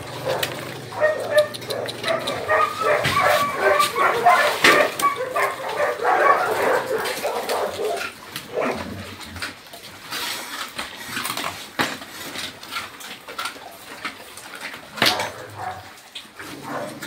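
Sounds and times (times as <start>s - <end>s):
dogs yipping and barking: 0.0s - 9.0s, 12.8s - 17.0s.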